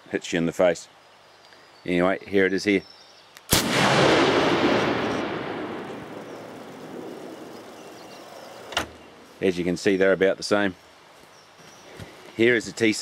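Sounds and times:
rifle shot with echo: 3.5 - 7.4.

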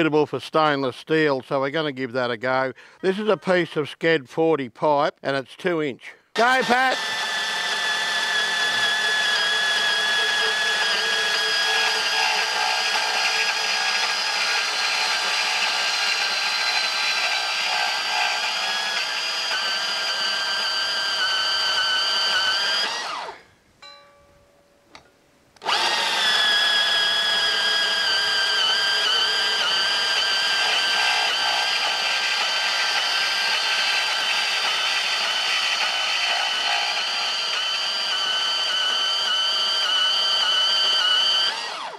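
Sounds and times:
bandsaw cutting pipe: 6.4 - 23.4, 25.6 - 41.9.

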